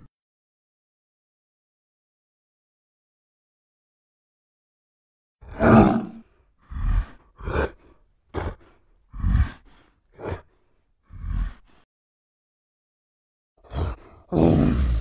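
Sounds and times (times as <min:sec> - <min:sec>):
gorilla grunting roars: 0:05.4 - 0:11.8, 0:13.6 - 0:15.0.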